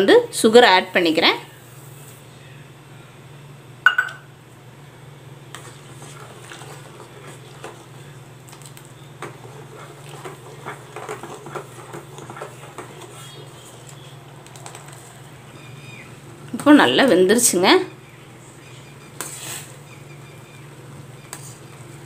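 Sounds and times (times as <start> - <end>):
metal spoon scraping pot: 9.2 - 14.0.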